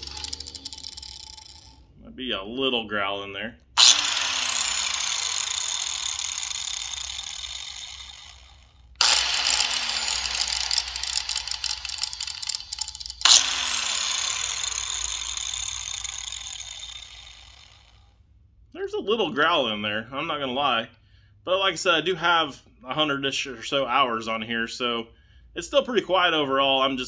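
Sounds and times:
angle grinder whining: 0.0 - 1.9, 3.8 - 18.1.

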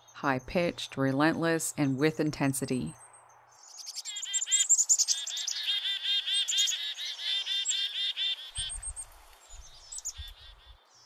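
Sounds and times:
chickadee alarm calls: 3.6 - 10.8.

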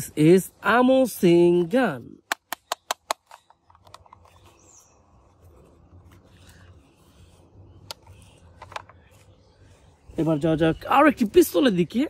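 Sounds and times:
bird chirping: 0.0 - 12.0
toy cap pistol clicks: 2.2 - 4.2.

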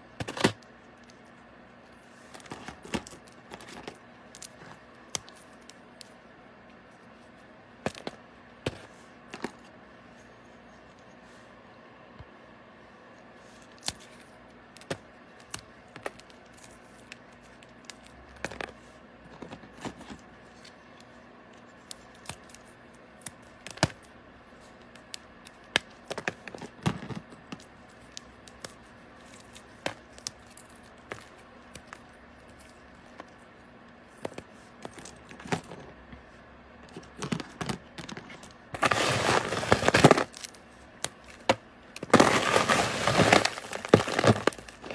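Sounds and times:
moth bar chunks crunching in hands: 13.5 - 33.6, 37.0 - 44.9.

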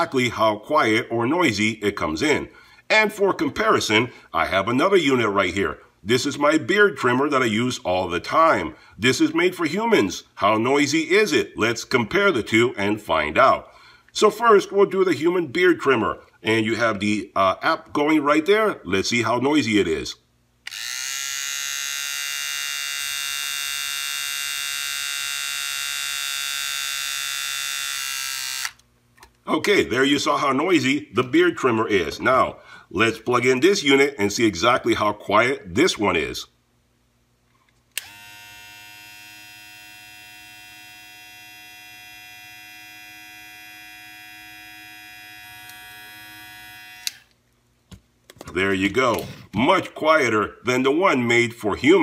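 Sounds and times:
electric clippers humming: 20.7 - 28.8, 38.0 - 47.3
electric trimmer buzzing: 20.7 - 28.8, 38.0 - 47.3.

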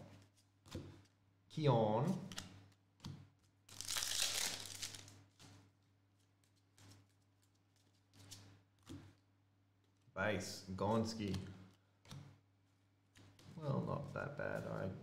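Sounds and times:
cards rustling: 2.3 - 8.9
foil wrapper tearing and crinkling: 3.7 - 5.1.

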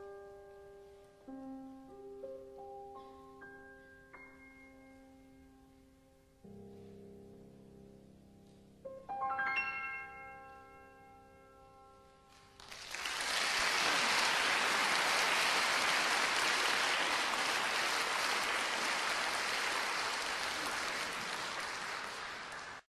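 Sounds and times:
audience applause: 12.6 - 22.9.

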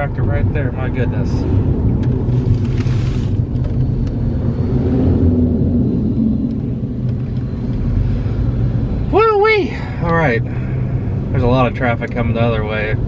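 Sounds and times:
car cabin road rumble: 0.0 - 13.0.

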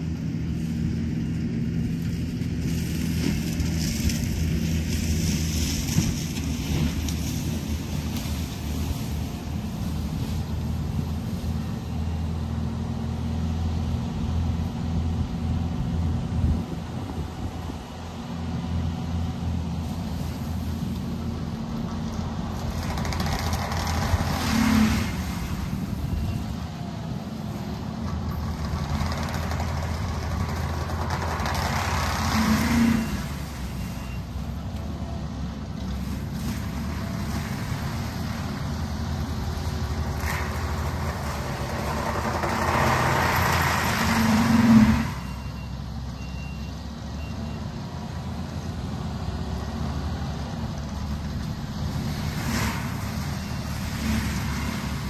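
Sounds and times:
diesel engine droning: 0.0 - 55.0
mulcher grinding brush: 1.9 - 12.2, 19.7 - 34.8, 35.8 - 45.4.

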